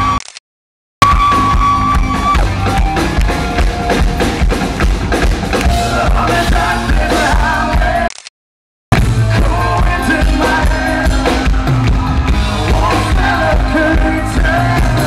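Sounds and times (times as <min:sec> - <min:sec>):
live rock band playing: 0:01.0 - 0:08.0, 0:09.0 - 0:15.0
lead singer singing: 0:05.6 - 0:08.1, 0:09.2 - 0:15.0.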